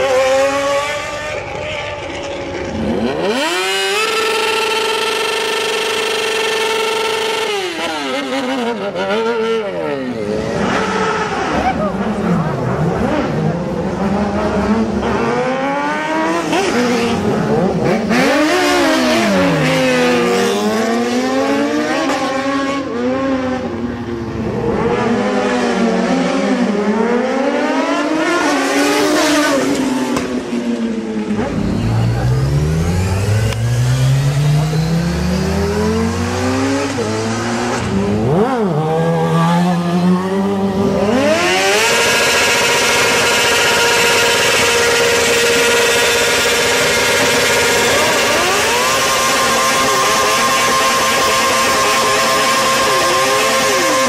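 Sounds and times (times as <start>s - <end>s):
motorcycle engines revving: 0.0s - 54.0s.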